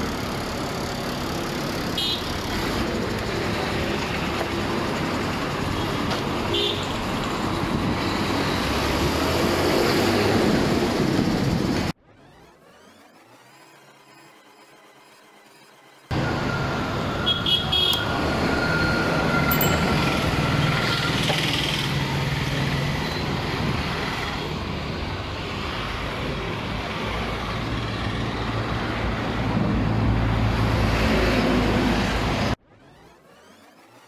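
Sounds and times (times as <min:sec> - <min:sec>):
street traffic: 0:00.0 - 0:34.0
nearby engine: 0:07.1 - 0:24.8, 0:30.5 - 0:34.0.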